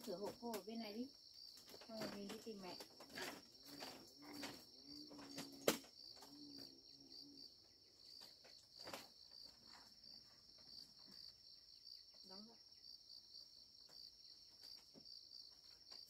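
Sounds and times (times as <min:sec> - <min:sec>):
insects chirping: 0:00.0 - 0:16.0
footsteps on bamboo floor: 0:01.6 - 0:05.6.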